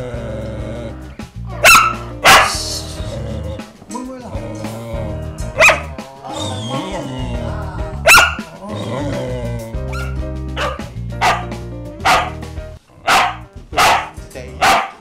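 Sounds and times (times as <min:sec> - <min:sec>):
background music: 0:00.0 - 0:15.0
dog barking: 0:01.6 - 0:02.7, 0:05.6 - 0:05.9, 0:08.0 - 0:08.5, 0:09.9 - 0:12.4, 0:13.0 - 0:15.0.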